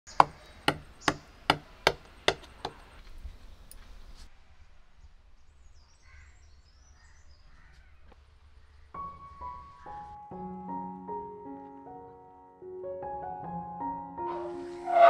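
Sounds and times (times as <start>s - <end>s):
faint bird calls: 5.8s - 10.0s.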